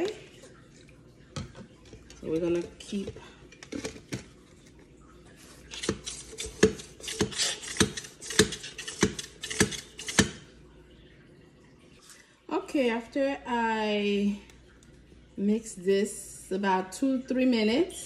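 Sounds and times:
batter pump plunger clacking: 5.7 - 10.4.

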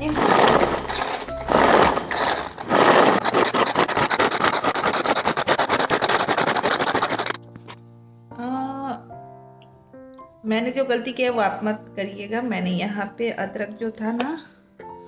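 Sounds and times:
hand food chopper whirring: 0.0 - 7.4.

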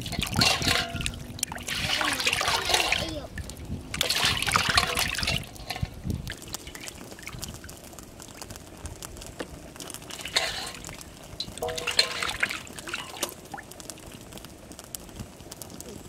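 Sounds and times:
water splashing in metal basin: 0.0 - 7.7, 10.1 - 13.7.

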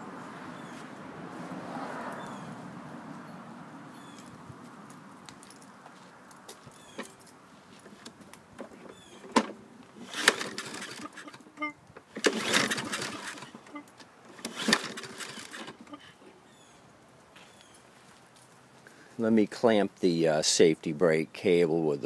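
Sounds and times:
engine cranking: 8.0 - 16.1.

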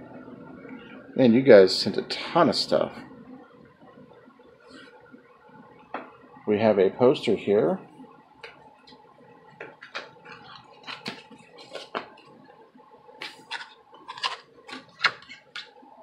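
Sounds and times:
paper poster crinkling: 10.3 - 12.1, 13.2 - 15.6.

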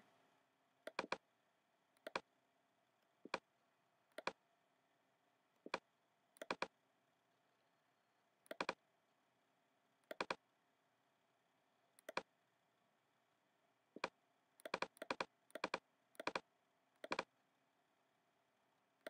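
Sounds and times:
computer mouse clicks: 0.8 - 1.3, 2.0 - 2.3, 4.1 - 4.4, 6.4 - 6.7, 8.4 - 8.8, 10.0 - 10.4, 12.0 - 12.3, 14.0 - 17.3.

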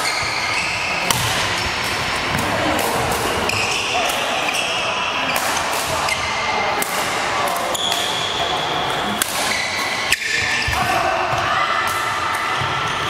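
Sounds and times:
rackets hitting shuttlecocks: 1.0 - 4.2.

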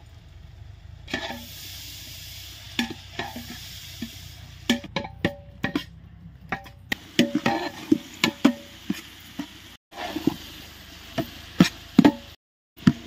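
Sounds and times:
faint sizzle: 0.0 - 4.9, 7.0 - 13.0
metal ladle scraping a pot: 1.1 - 1.7, 2.8 - 10.6.

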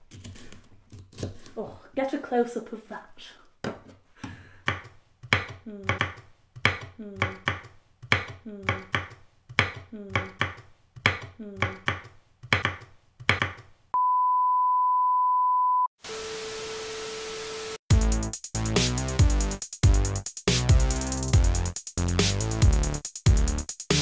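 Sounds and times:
knife chopping on wooden board: 4.6 - 13.6.

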